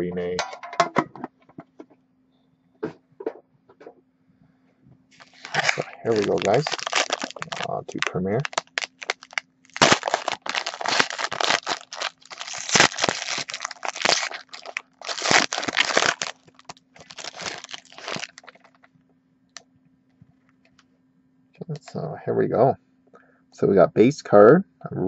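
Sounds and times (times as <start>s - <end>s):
foil wrapper crinkling and tearing: 5.2s - 18.8s.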